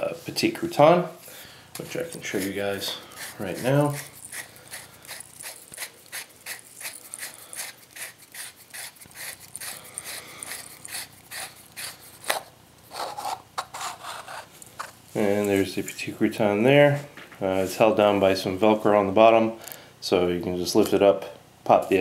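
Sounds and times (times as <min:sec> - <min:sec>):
metal threads scraping: 0:01.9 - 0:16.1.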